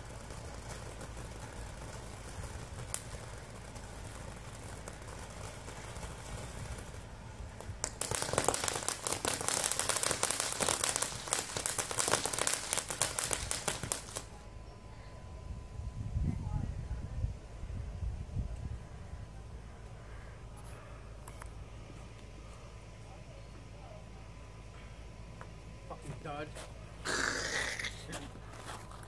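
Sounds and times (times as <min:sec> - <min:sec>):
firework fountain crackling: 0:00.0 - 0:14.4.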